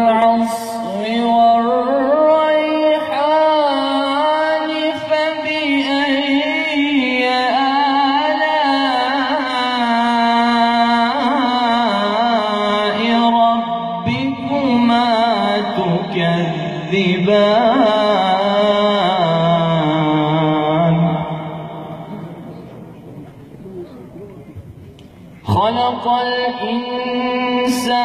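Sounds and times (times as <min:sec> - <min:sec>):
choir holding low drone: 0:14.0 - 0:27.8.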